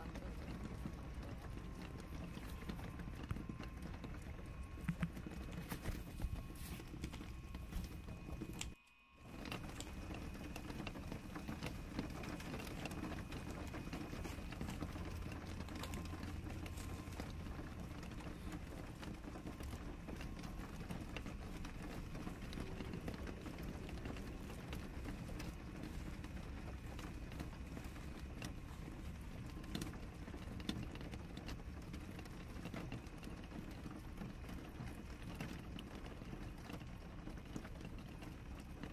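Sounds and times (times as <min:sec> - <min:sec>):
bubble wrap crinkling: 0:04.8 - 0:08.8.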